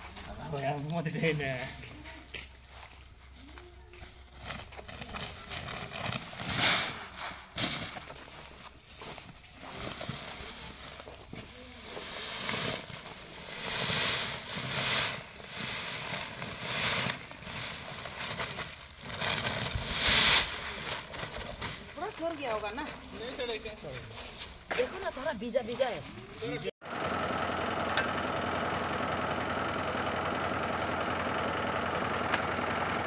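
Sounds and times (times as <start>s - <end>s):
sacks rustling: 4.1s - 26.7s
grain pouring onto tarpaulin: 9.6s - 22.0s.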